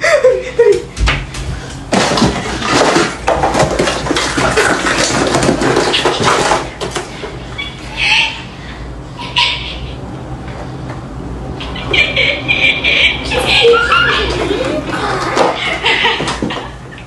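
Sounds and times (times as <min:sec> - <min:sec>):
plastic box clattering and rattling: 0:01.9 - 0:07.1.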